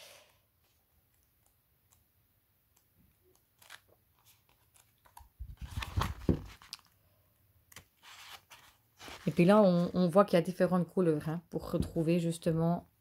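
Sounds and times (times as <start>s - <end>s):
book pages turning: 2.7s - 7.0s, 7.7s - 10.1s
pages rustling: 2.7s - 7.0s, 7.7s - 10.0s
book handled with dull bumps: 5.4s - 6.7s.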